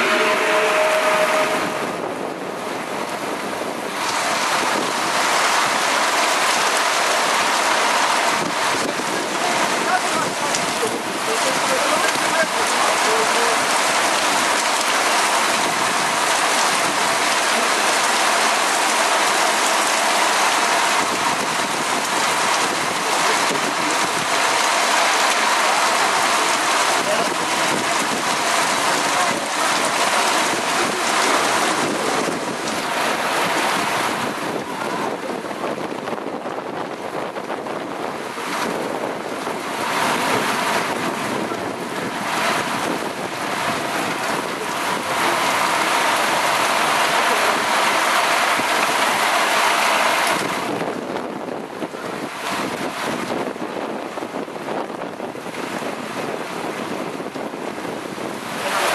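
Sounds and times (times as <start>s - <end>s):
heavy rain hissing: 0.0s - 58.9s
wind: 0.0s - 58.9s.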